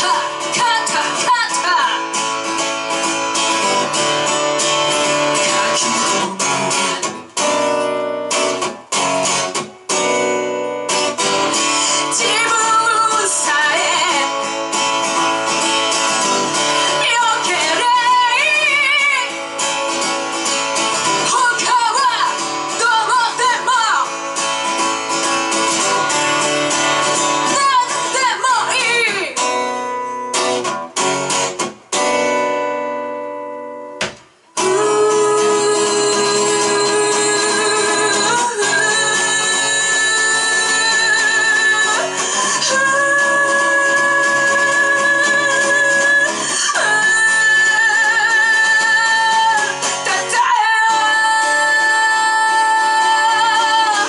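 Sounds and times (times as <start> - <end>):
strummed guitar chords: 0.0 - 54.0
person singing: 3.4 - 7.1, 11.8 - 14.5, 16.0 - 19.9, 34.6 - 54.0.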